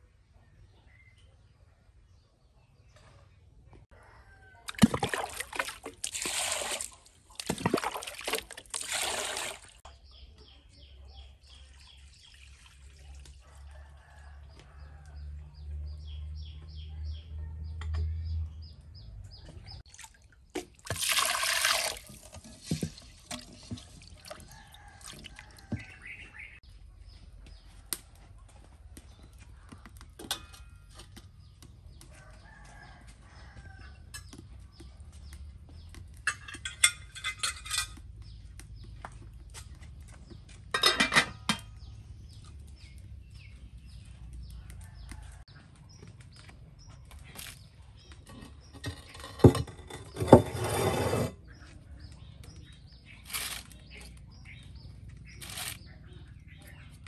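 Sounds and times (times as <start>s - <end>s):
water splashing in metal basin: 4.6s - 9.9s, 12.0s - 13.4s, 19.9s - 25.8s
metal bowls clinking: 36.2s - 38.0s, 40.7s - 41.8s.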